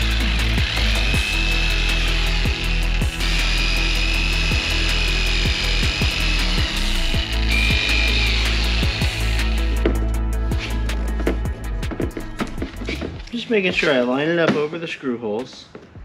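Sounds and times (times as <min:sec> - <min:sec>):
jigsaw cutting wood: 0:00.0 - 0:10.0
background music: 0:00.0 - 0:16.0.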